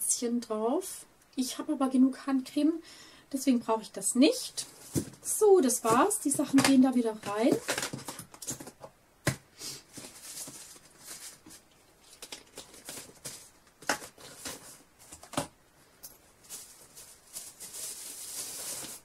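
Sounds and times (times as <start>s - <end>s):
packaging rustling: 4.6s - 5.2s, 5.8s - 8.9s, 9.8s - 15.5s, 16.2s - 19.0s.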